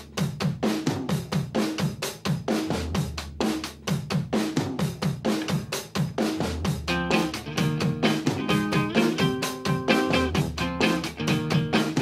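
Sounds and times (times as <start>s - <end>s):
fast drum-kit beat: 0.0s - 12.0s.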